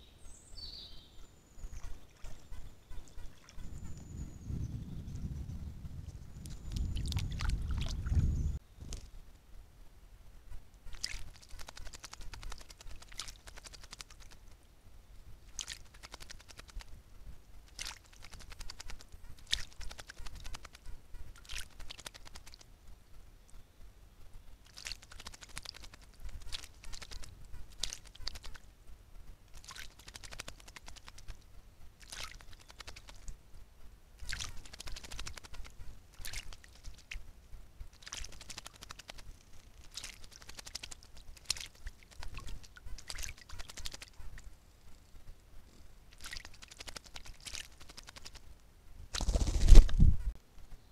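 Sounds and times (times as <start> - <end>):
bird splashing in water: 1.7 - 3.7, 6.7 - 8.3, 10.9 - 14.5, 15.5 - 16.9, 17.7 - 22.7, 24.6 - 28.6, 29.5 - 31.4, 32.0 - 33.4, 34.2 - 37.2, 37.9 - 44.5, 46.1 - 48.4.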